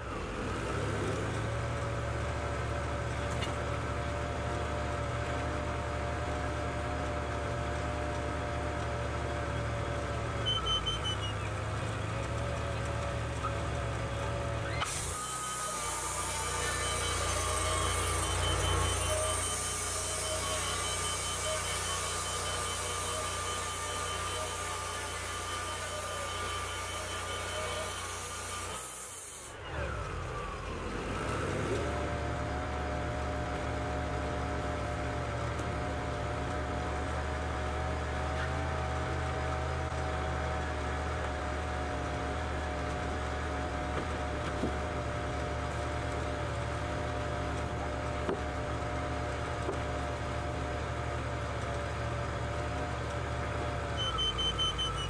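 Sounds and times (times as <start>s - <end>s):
sawmill engine under load: 0.0s - 55.0s
saw blade hissing through wood: 14.7s - 29.6s.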